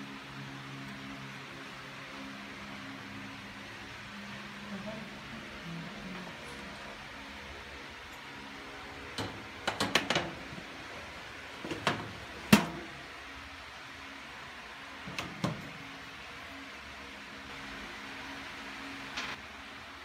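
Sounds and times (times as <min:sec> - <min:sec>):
metal baking tray clattering: 0:09.2 - 0:10.5.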